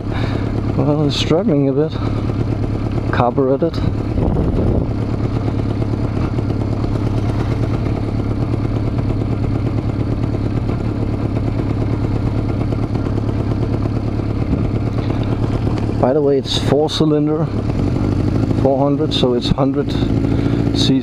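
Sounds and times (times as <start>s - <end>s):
motorcycle engine at low revs: 0.0s - 21.0s.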